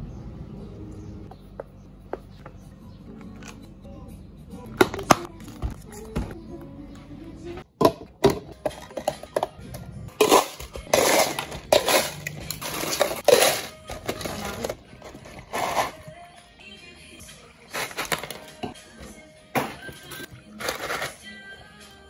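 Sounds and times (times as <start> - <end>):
plastic cups clicking: 7.8 - 15.9
ice cubes clattering into cups: 10.2 - 16.0, 17.7 - 18.8, 20.0 - 21.4.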